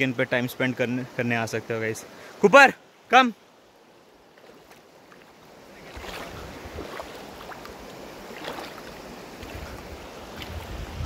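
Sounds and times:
river rushing over stones: 0.0s - 11.0s
water splashes: 4.2s - 11.0s.

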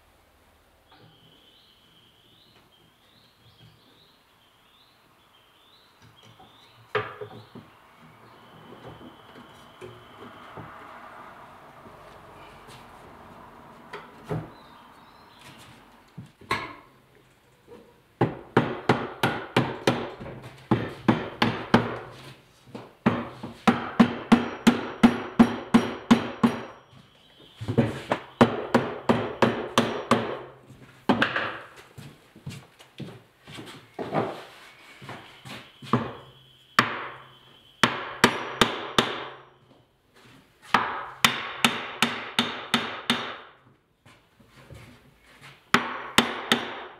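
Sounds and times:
hammer striking wood: 18.2s - 22.1s, 23.0s - 26.8s, 27.8s - 30.5s, 31.1s - 31.7s, 35.9s - 36.2s, 36.8s - 37.2s, 37.8s - 39.4s, 40.7s - 43.6s, 45.7s - 46.9s.

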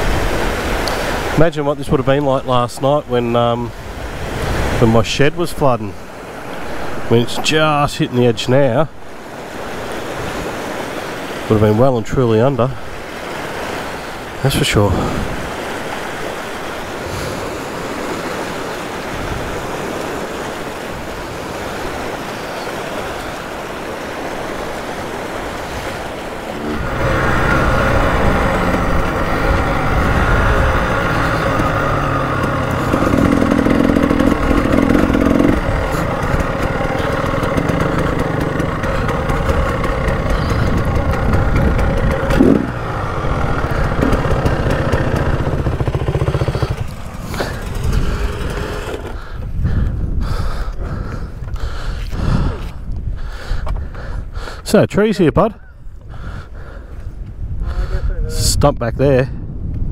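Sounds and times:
floodwater rushing: 0.0s - 49.7s
dirt bike engine revving: 25.0s - 49.4s.

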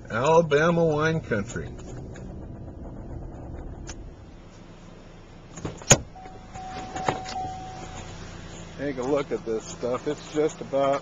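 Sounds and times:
car engine running: 0.0s - 11.0s
warning tone: 6.1s - 8.2s.

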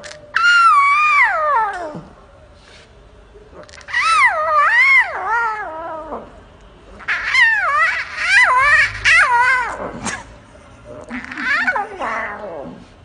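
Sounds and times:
lion cub meow-like calls: 3.7s - 6.3s, 11.0s - 12.9s.

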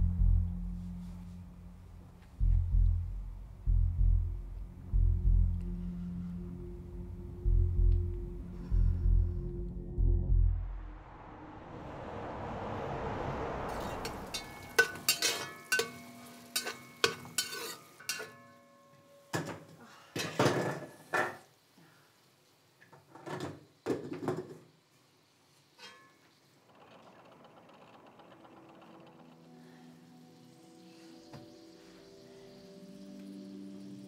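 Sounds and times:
rushes of noise: 8.3s - 15.2s
dishes and cutlery clinking: 14.4s - 21.4s
soft hiss: 20.8s - 26.7s, 29.4s - 34.0s.

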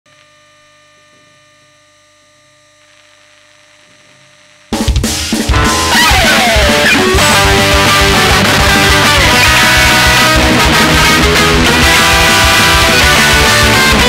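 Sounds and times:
faint steady hum: 0.1s - 4.7s
punk rock song: 4.8s - 14.0s.

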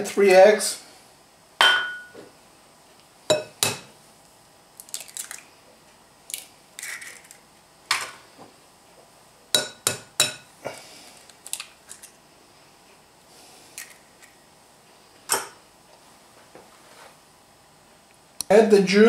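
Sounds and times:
eggs cracking against a bowl: 4.8s - 5.5s, 11.1s - 12.2s.

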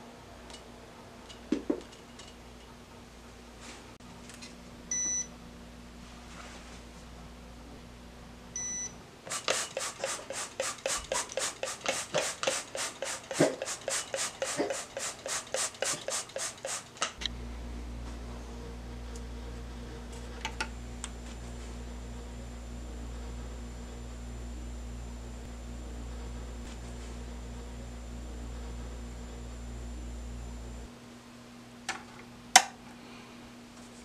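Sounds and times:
electrical mains hum: 0.0s - 34.0s
faint high whine: 17.2s - 31.3s.

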